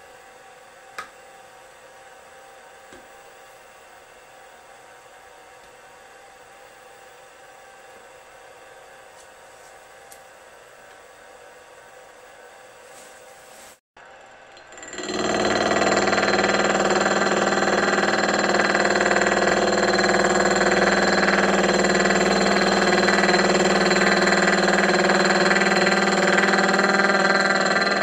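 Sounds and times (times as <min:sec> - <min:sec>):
milling machine whining: 0:14.0 - 0:28.0.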